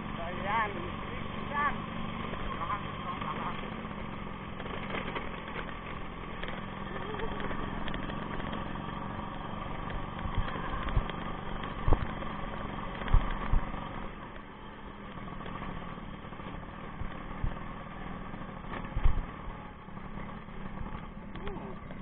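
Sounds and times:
motorcycle engine running: 0.0 - 22.0
sharp thumps from bumps: 4.5 - 14.4, 18.6 - 19.6.

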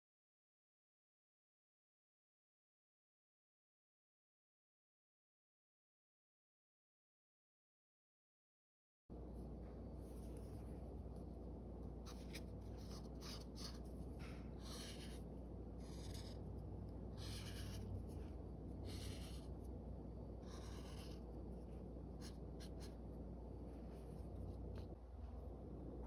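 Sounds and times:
faint steady hum: 9.1 - 26.0
marker scratching on paper: 12.0 - 19.8, 20.4 - 23.0.

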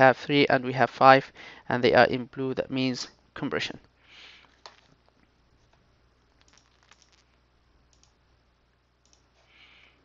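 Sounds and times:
faint computer clicks: 6.4 - 7.2, 7.9 - 8.2, 9.0 - 9.3.

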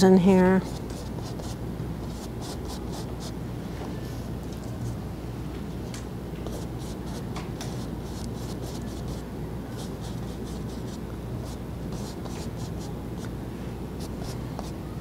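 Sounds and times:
low room hum: 0.0 - 15.0
paintbrush scratching on canvas: 0.6 - 3.4, 9.8 - 12.9.

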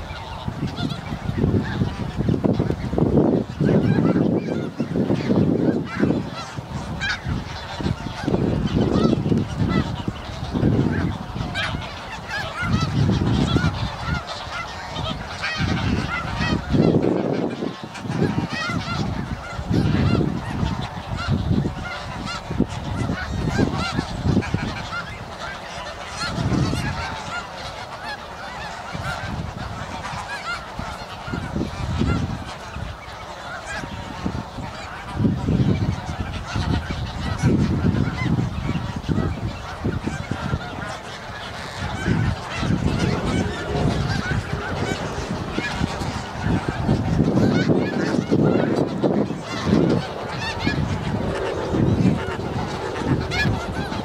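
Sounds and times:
geese honking: 0.0 - 54.0
low rumbling: 41.8 - 54.0.

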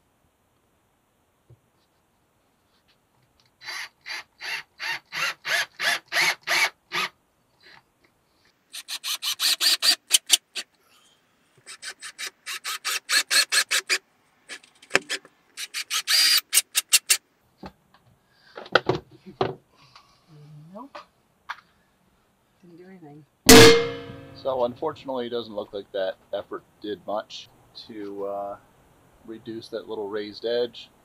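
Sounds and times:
cordless drill driving screws: 8.8 - 10.4, 11.6 - 14.0, 14.6 - 17.2.

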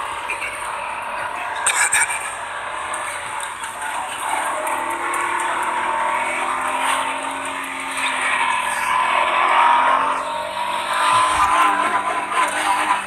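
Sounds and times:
car engine whining in cabin: 0.0 - 13.0.

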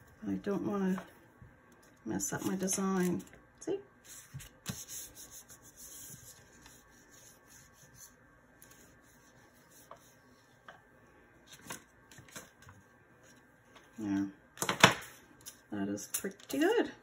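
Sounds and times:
roller rubbing over paper: 4.0 - 10.6.

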